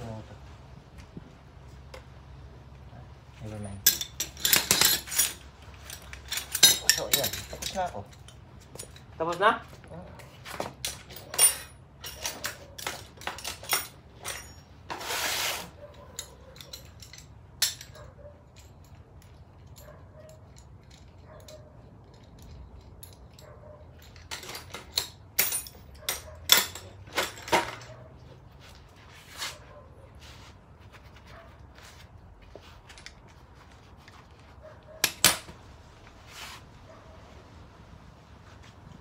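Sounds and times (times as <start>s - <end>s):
metal tools clinking: 3.4s - 29.7s, 32.4s - 35.6s.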